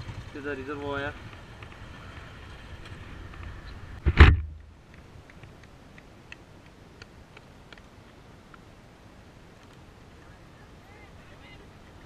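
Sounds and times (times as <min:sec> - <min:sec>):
motorcycle engine and wind: 0:00.0 - 0:04.6
sudden loud thump: 0:04.0 - 0:04.6.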